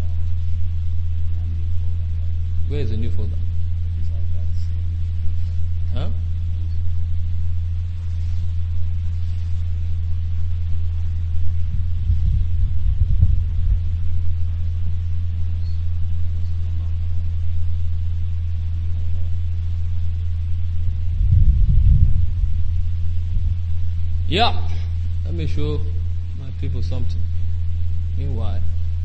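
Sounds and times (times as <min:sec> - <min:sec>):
low electrical hum: 0:00.0 - 0:29.0
muffled low rumbles: 0:00.0 - 0:29.0.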